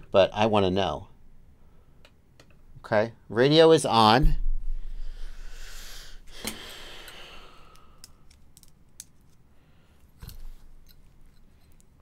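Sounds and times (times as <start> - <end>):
small objects clicking on a desk: 7.7 - 9.4.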